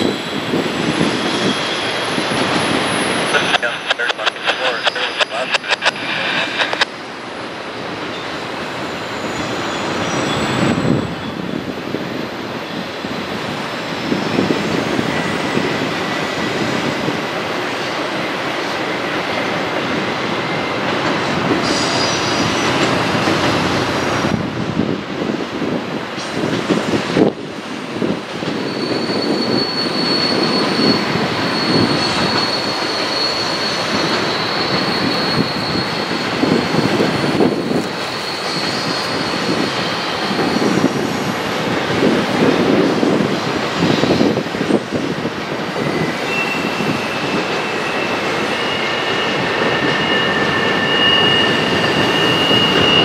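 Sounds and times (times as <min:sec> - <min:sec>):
train wheels rumbling on rail: 0:00.0 - 0:53.0
wheel flange squeal: 0:28.6 - 0:40.8, 0:45.7 - 0:53.0.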